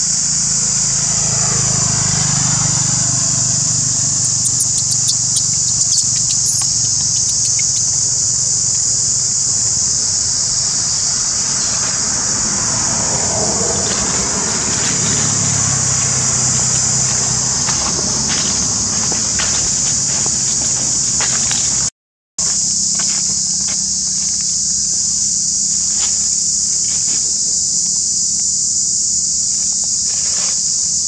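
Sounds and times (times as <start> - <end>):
insects droning: 0.0 - 31.0
dry leaves rustling underfoot: 2.3 - 12.3, 13.7 - 25.0.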